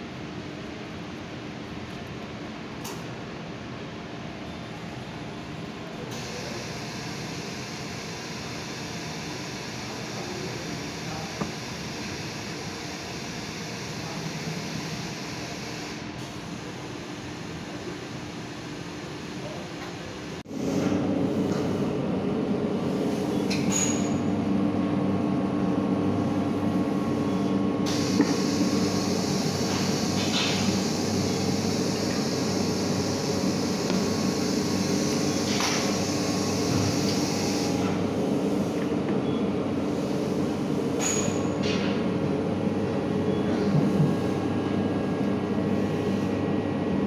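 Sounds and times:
factory machinery drone: 0.0s - 47.0s
hiss: 27.9s - 38.0s.

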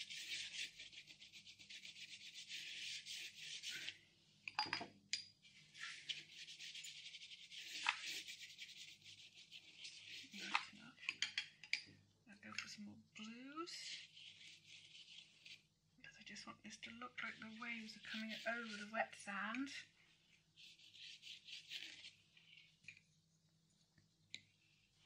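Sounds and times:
paintbrush scratching on paper: 0.0s - 4.0s, 5.6s - 10.9s, 13.8s - 15.7s, 16.9s - 19.2s, 20.5s - 22.2s.

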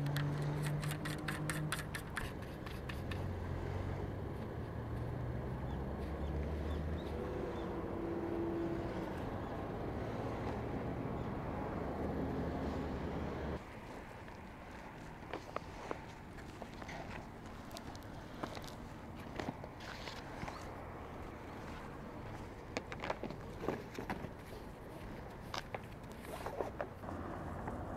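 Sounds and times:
quick clicks: 0.0s - 3.3s
engine running: 27.0s - 27.9s.

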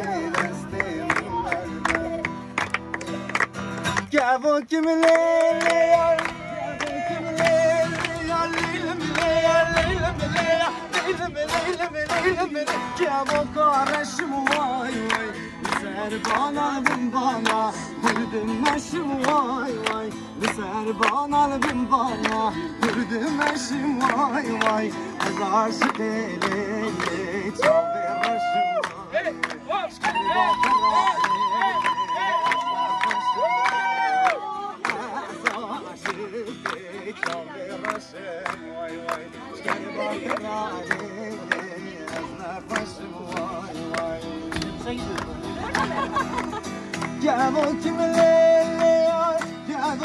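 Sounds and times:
man singing: 0.0s - 2.5s, 4.0s - 45.6s, 46.9s - 50.0s
acoustic guitar strumming: 0.0s - 50.0s
people clapping along: 0.0s - 50.0s.

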